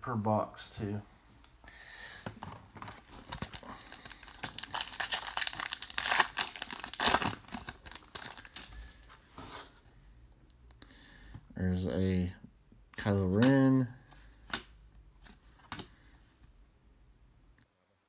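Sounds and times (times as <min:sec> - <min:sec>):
foil wrapper tearing and crinkling: 0:03.2 - 0:08.7.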